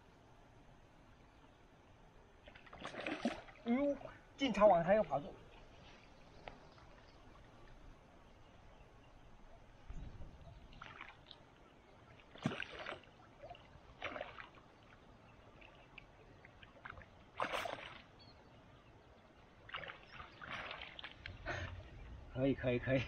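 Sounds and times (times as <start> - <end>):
fish thrashing and splashing in water: 2.5 - 3.6, 12.3 - 14.7, 16.8 - 18.2, 19.7 - 21.2.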